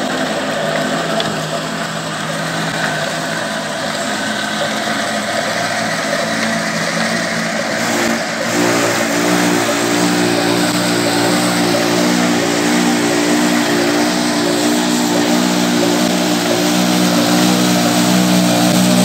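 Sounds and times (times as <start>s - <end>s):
diesel engine running: 0.0s - 19.0s
steady machine hum: 0.0s - 19.0s.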